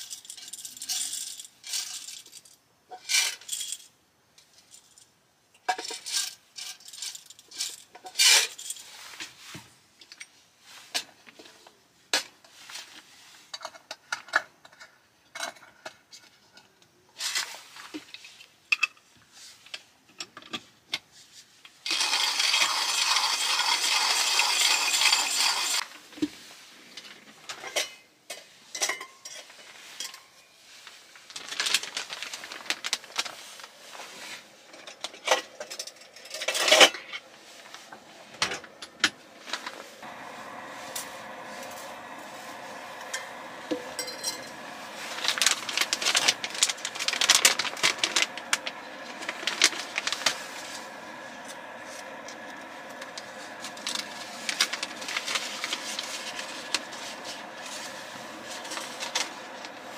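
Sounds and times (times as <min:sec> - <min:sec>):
hand coffee grinder rasping: 0:21.9 - 0:25.8, 0:40.0 - 0:59.9
metal cup and utensils clinking: 0:27.6 - 0:30.4, 0:40.9 - 0:59.9.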